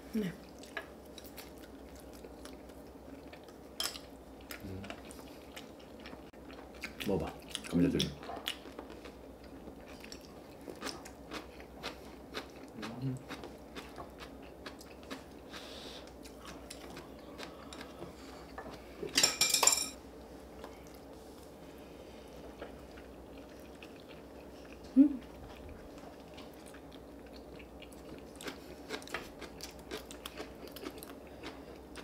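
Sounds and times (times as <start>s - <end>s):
people chewing: 0.1s - 19.2s, 20.6s - 32.0s
dishes clattering: 19.1s - 20.0s.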